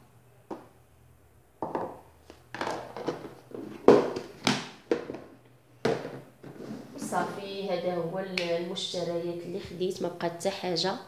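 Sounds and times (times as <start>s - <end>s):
plastic containers clattering: 1.6s - 7.4s.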